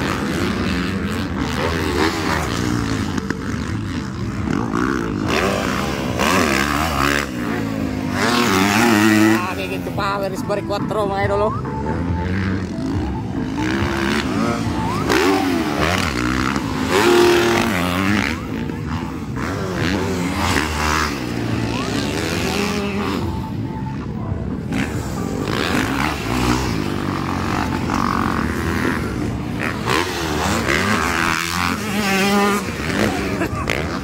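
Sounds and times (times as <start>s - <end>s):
dirt bike engines revving: 0.0s - 34.0s.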